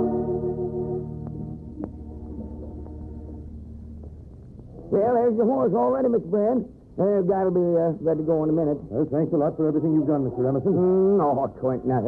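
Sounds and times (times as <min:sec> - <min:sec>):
organ chord: 0:00.0 - 0:04.0
steady low hum: 0:00.0 - 0:05.4.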